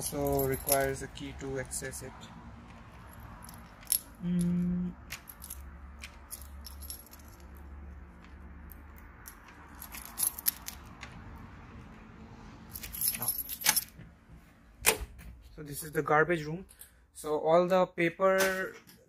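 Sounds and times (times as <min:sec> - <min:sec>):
keys jangling: 0:00.0 - 0:01.0, 0:03.0 - 0:04.2, 0:05.0 - 0:07.7, 0:08.7 - 0:10.9, 0:12.7 - 0:14.0.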